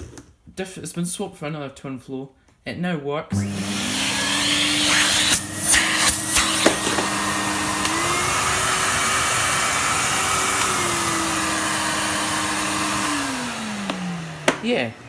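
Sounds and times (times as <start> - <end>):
vacuum cleaner motor whine: 3.3 - 15.0.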